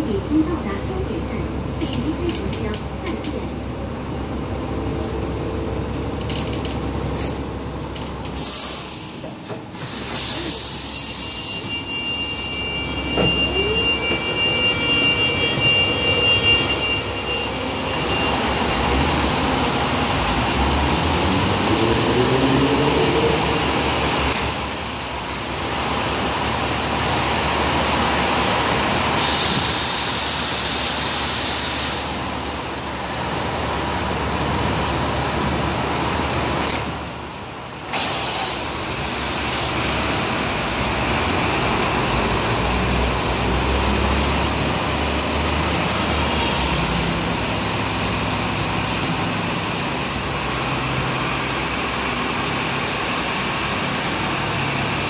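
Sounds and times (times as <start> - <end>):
bus engine and road noise: 0.0 - 55.0
air brake hisses: 7.2 - 7.4, 8.4 - 13.0, 29.2 - 32.2
engines revving: 18.6 - 24.7.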